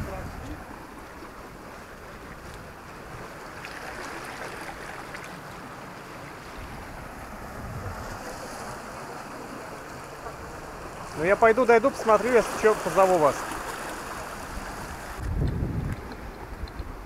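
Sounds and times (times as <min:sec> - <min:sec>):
wind rumbling on microphone: 0:00.0 - 0:03.4, 0:06.4 - 0:09.6, 0:13.5 - 0:17.0
sea surf washing on shore: 0:00.0 - 0:17.0.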